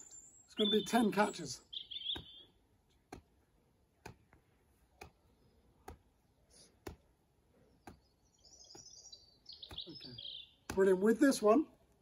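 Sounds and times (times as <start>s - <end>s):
rubber ball slapping into hands: 3.0s - 6.2s, 6.8s - 7.2s.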